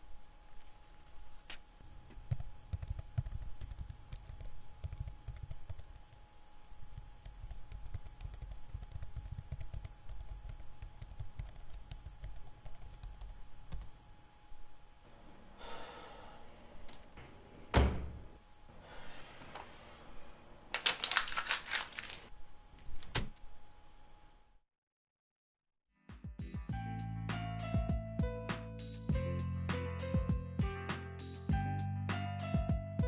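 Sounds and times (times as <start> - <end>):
soft breathy rush: 15.4 - 17.0.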